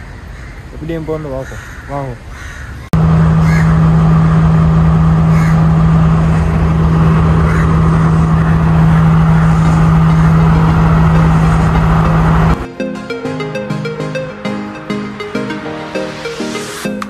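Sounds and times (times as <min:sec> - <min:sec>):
diesel train engine idling: 0:03.0 - 0:12.7.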